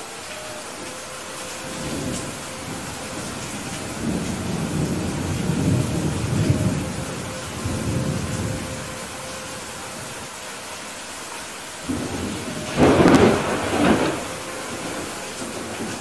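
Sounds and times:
heavy rain: 0.0s - 16.0s
rolling thunder: 1.6s - 9.2s, 11.8s - 16.0s.

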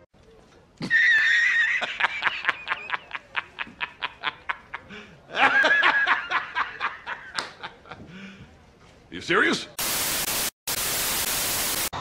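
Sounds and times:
man laughing hard: 0.9s - 8.0s.

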